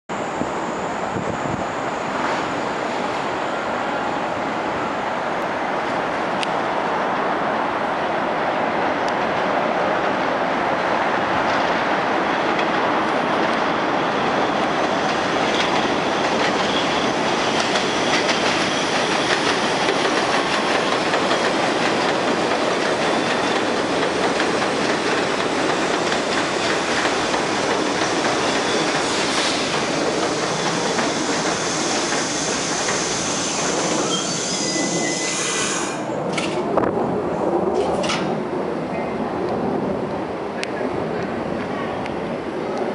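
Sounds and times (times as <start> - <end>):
subway train rumble on rails: 0.1 - 42.9
high wheel and brake squeal: 16.5 - 19.8, 28.1 - 36.0.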